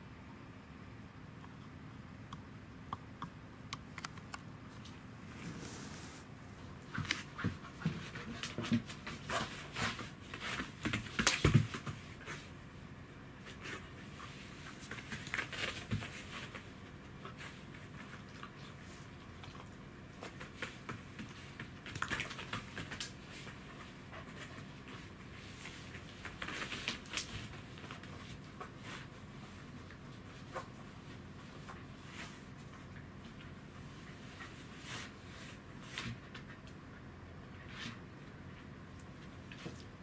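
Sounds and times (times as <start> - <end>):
dog body scraping floor: 5.3 - 6.3.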